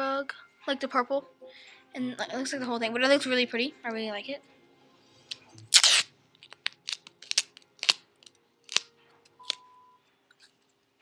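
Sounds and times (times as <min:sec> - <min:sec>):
tape rolls brushing rustle: 0:05.7 - 0:06.0.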